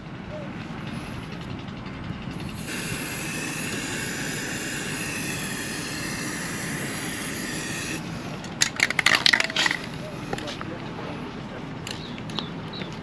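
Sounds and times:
aerosol spray can hissing: 2.6s - 8.3s.

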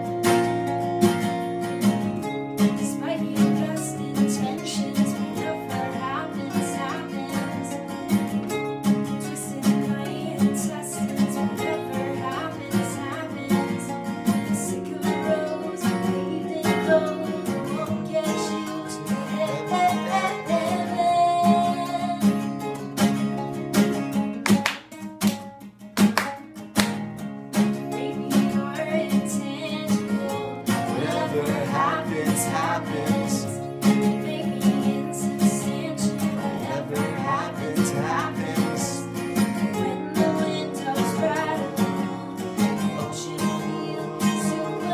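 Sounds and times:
acoustic guitars strumming: 0.0s - 44.9s
person singing: 2.6s - 8.0s, 9.1s - 22.5s, 27.8s - 44.9s
hand claps: 24.4s - 27.1s.

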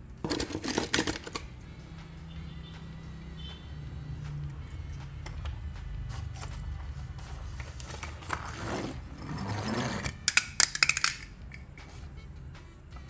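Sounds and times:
toy car clattering on tile floor: 0.2s - 1.5s, 8.3s - 11.7s
toy car rolling on plastic: 0.2s - 1.5s, 8.0s - 10.4s.

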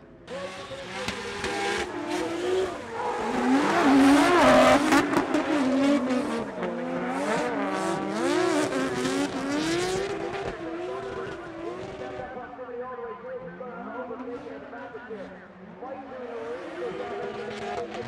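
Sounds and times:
car engines revving: 0.1s - 12.5s, 16.0s - 18.0s
tyre squeal: 0.5s - 6.3s.

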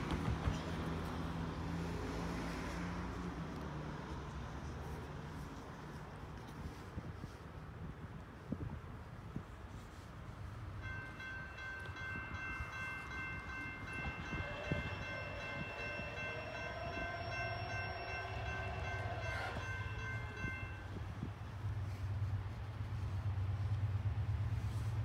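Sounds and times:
locomotive air horn chord: 13.7s - 21.0s.

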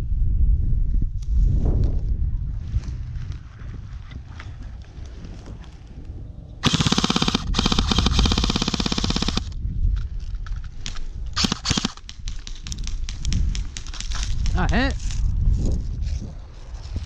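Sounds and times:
airsoft gun bursts: 6.6s - 9.6s, 11.4s - 12.4s
sharp clicks: 6.6s - 9.6s, 10.8s - 14.7s.

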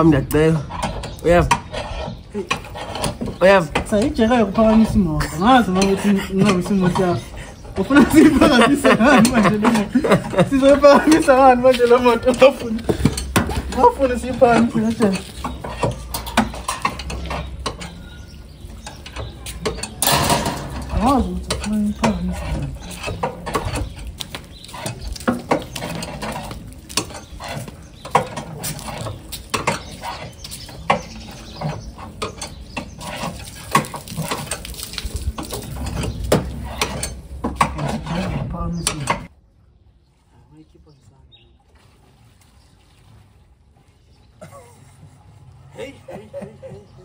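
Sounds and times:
car jack clicking and clanking: 9.2s - 24.1s.

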